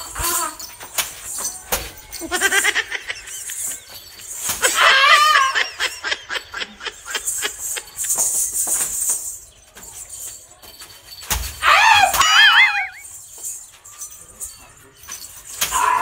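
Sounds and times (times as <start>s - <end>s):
people laughing: 2.1s - 8.4s.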